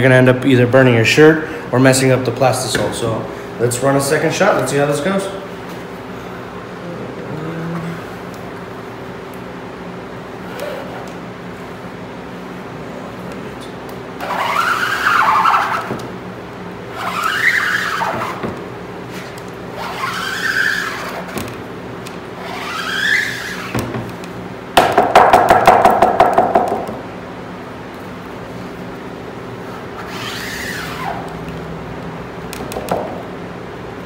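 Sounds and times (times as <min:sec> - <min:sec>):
squeegee juddering: 0:14.1 - 0:16.2, 0:16.8 - 0:24.3, 0:29.6 - 0:31.6
squeegee squeaking across mesh: 0:14.2 - 0:16.0, 0:16.9 - 0:18.5, 0:19.1 - 0:21.4, 0:22.4 - 0:23.8, 0:29.7 - 0:31.3.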